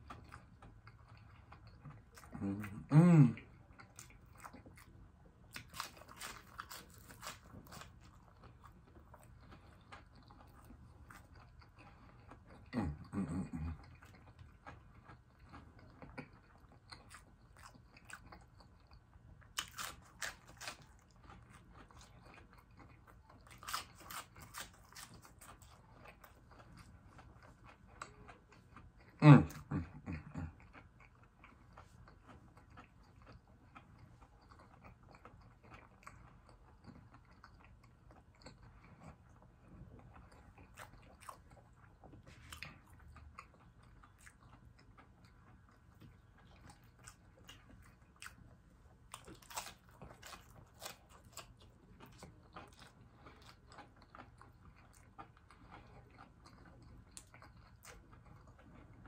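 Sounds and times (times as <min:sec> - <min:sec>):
person crunching fried food: 0:03.6 - 0:59.0.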